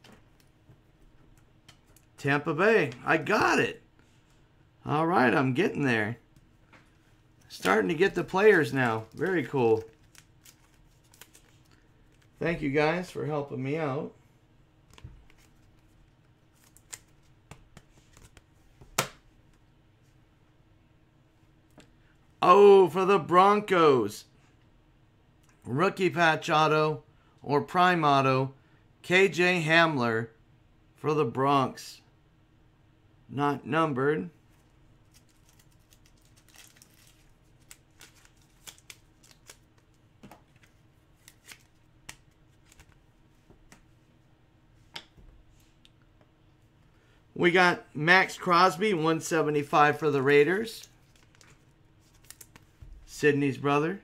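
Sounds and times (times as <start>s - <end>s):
low room hum: 0.0s - 54.0s
cards and packaging clicking: 7.4s - 12.3s, 14.9s - 18.4s, 35.1s - 43.0s, 50.8s - 52.7s.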